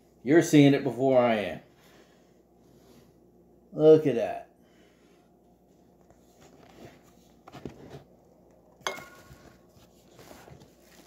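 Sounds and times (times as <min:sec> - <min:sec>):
soft scrapes: 0:05.6 - 0:08.1, 0:09.3 - 0:11.0.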